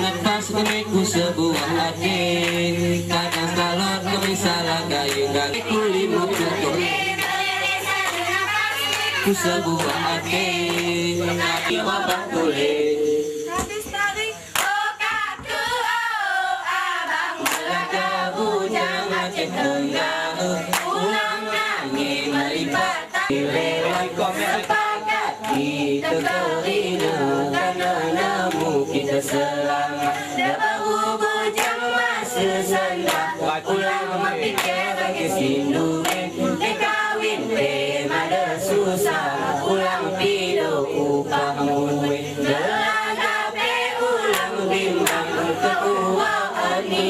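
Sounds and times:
hand claps: 0:00.0 - 0:12.4, 0:13.6 - 0:15.8, 0:17.4 - 0:18.1, 0:20.0 - 0:21.2, 0:22.8 - 0:37.8, 0:44.2 - 0:47.0
group singing unaccompanied: 0:00.0 - 0:47.0.

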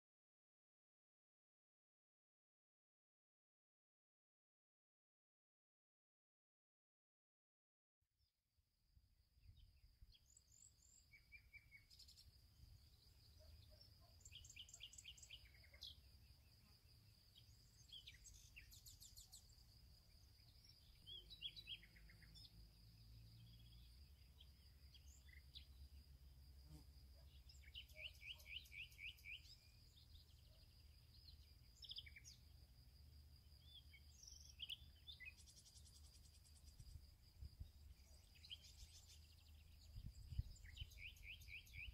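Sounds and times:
birds chirping and trilling: 0:09.6 - 0:26.1, 0:26.7 - 0:32.6, 0:33.5 - 0:41.9.

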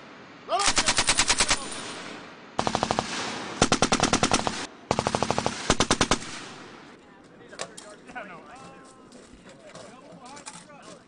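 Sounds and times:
machine gun bursts with echo: 0:00.6 - 0:06.8.

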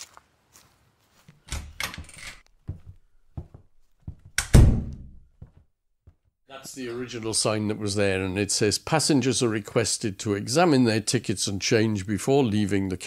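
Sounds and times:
knocks and thuds: 0:01.6 - 0:06.3
heavy thump: 0:02.7 - 0:05.6.

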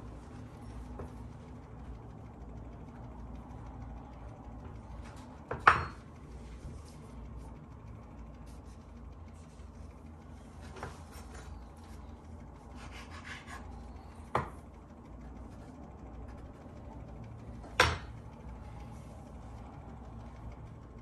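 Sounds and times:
knife scraping and cutting dough: 0:10.5 - 0:12.0, 0:12.6 - 0:14.6.

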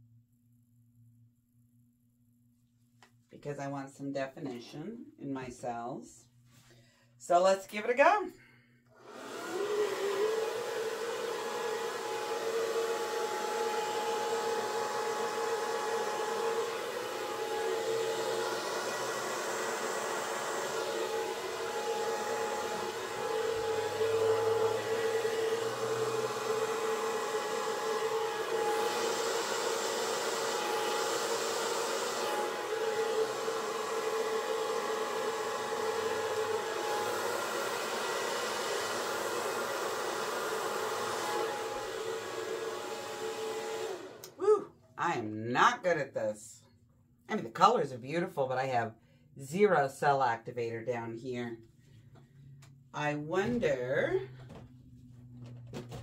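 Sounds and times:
hair dryer running: 0:08.9 - 0:44.8, 0:52.0 - 0:56.0.

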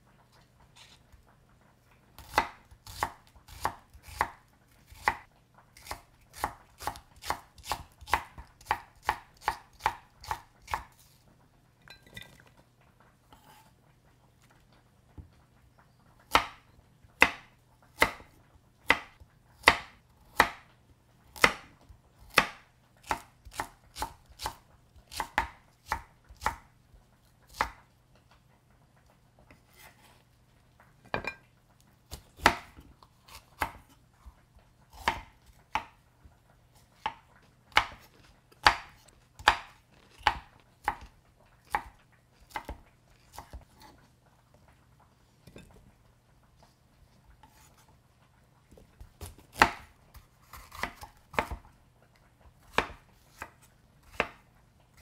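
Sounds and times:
knife chopping on cutting board: 0:02.2 - 0:05.2, 0:05.8 - 0:11.0, 0:16.3 - 0:16.6, 0:17.2 - 0:18.3, 0:18.9 - 0:20.6, 0:21.4 - 0:21.7, 0:22.3 - 0:26.6, 0:32.1 - 0:34.0, 0:34.9 - 0:36.0, 0:37.0 - 0:41.1, 0:42.5 - 0:43.9, 0:49.2 - 0:51.6, 0:52.7 - 0:54.4.

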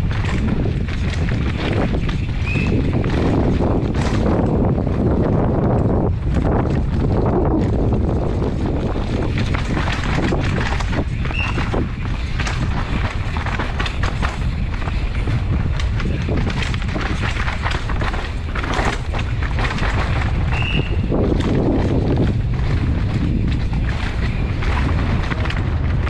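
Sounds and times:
bike tyres knocking on rocks: 0:00.0 - 0:26.0
wind rushing over microphone: 0:00.0 - 0:26.0.

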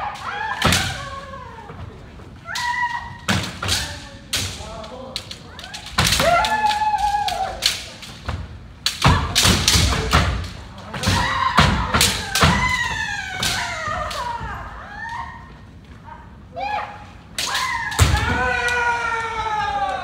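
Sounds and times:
bamboo swords clacking: 0:02.5 - 0:14.5, 0:17.3 - 0:19.1.

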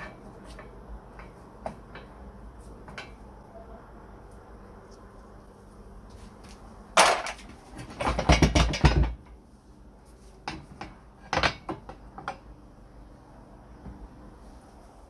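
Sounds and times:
wooden rollers knocking on metal frame: 0:07.0 - 0:09.4, 0:10.4 - 0:12.4.

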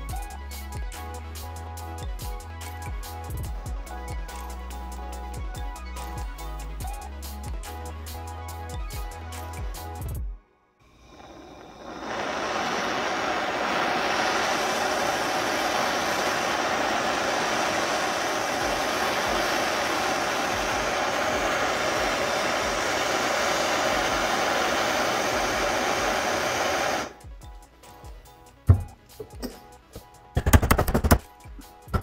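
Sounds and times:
gas torch hissing: 0:10.8 - 0:27.2.

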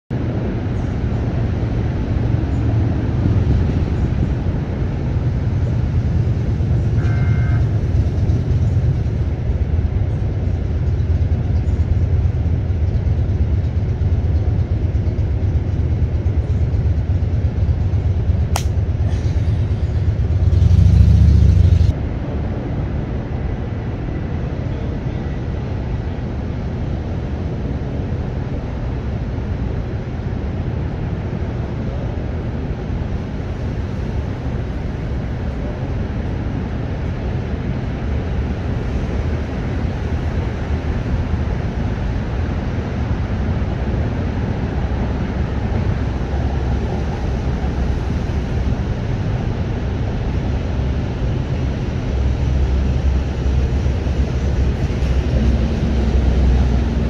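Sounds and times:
low outdoor rumble: 0:00.1 - 0:57.0
sharp click: 0:18.5 - 0:18.8.

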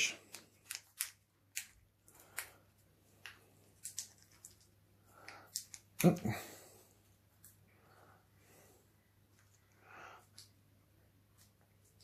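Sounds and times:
rustling of handling: 0:00.0 - 0:06.2.

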